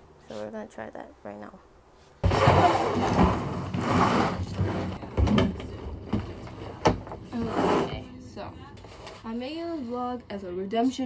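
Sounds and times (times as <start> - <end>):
suitcase scraping and rustling: 2.2 - 8.1.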